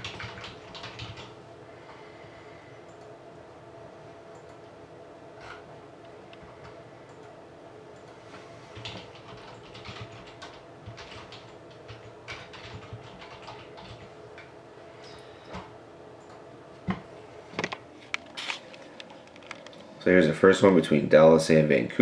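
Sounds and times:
typing on computer keyboard: 0:00.0 - 0:01.4, 0:08.8 - 0:14.5
steady hum: 0:00.0 - 0:22.0.

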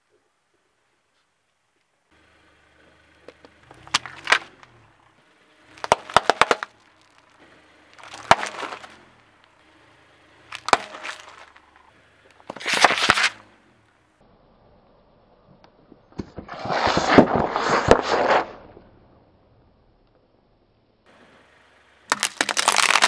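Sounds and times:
tyre crushing objects: 0:03.5 - 0:04.9, 0:05.7 - 0:09.1, 0:10.5 - 0:13.4, 0:22.1 - 0:23.0.

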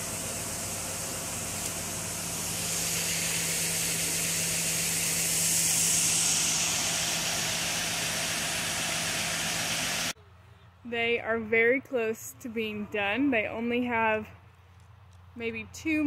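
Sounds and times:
machinery humming and hissing: 0:00.0 - 0:10.2.

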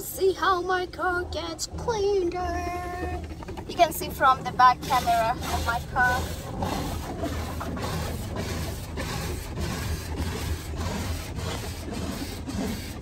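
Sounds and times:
low rumble: 0:00.0 - 0:08.9
car wash machinery working: 0:00.0 - 0:13.0
water spraying: 0:03.7 - 0:13.0.

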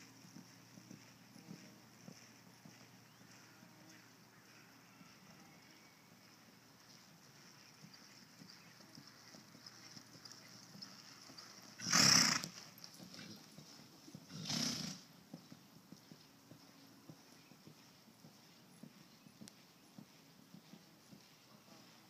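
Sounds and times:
soft hoof steps: 0:00.0 - 0:22.0
horse snorting: 0:11.8 - 0:13.5, 0:14.2 - 0:15.1.

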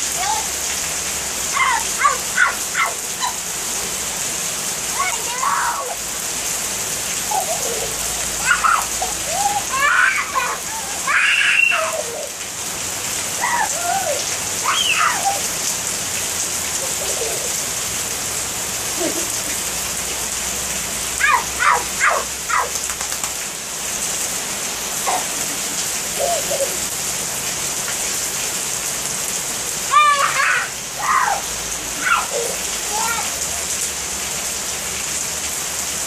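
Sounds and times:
child's high-pitched calls: 0:00.0 - 0:00.6, 0:01.4 - 0:03.5, 0:04.8 - 0:06.0, 0:07.2 - 0:12.4, 0:13.3 - 0:15.6, 0:21.2 - 0:22.8, 0:26.1 - 0:26.9, 0:29.8 - 0:33.7
heavy rain on pavement: 0:00.0 - 0:36.0.

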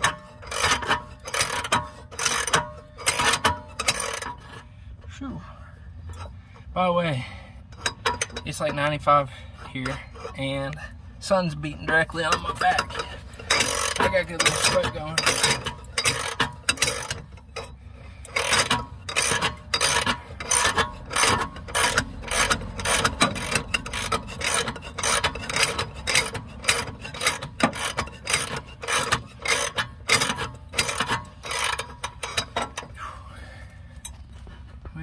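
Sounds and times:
wrench turning nut on threaded rod: 0:00.0 - 0:04.6, 0:11.8 - 0:32.9
metal scraping clicks: 0:00.0 - 0:04.7, 0:07.7 - 0:09.0, 0:11.6 - 0:33.0.

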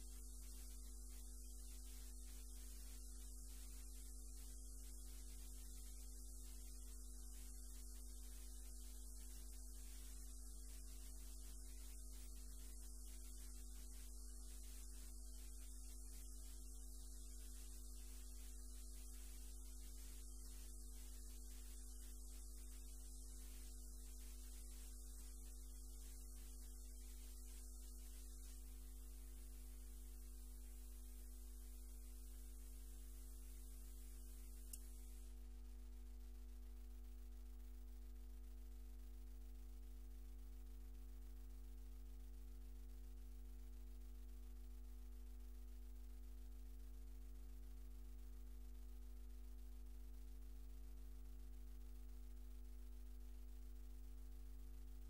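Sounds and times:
electrical mains hum: 0:00.0 - 0:29.8, 0:30.6 - 0:35.6
faint hiss: 0:00.0 - 0:35.6.

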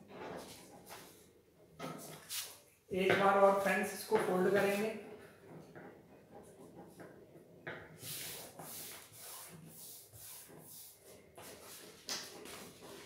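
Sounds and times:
paper being folded and rubbed: 0:02.2 - 0:02.6, 0:08.0 - 0:13.0.

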